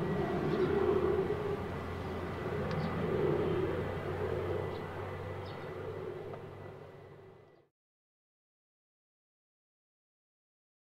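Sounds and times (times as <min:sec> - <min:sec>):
turboprop aircraft engine drone: 0:00.0 - 0:07.7.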